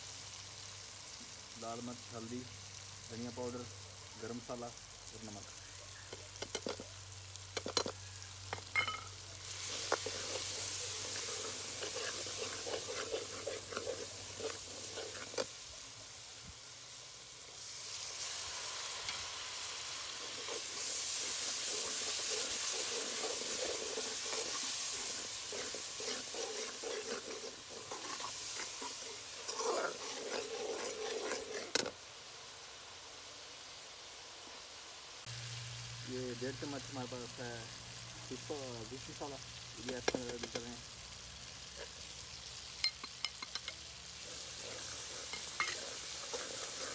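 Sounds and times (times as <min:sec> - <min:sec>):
masala sizzling in hot oil: 0:00.0 - 0:46.9
ladle scraping and knocking pan: 0:08.5 - 0:15.5, 0:20.2 - 0:31.9, 0:44.6 - 0:46.9.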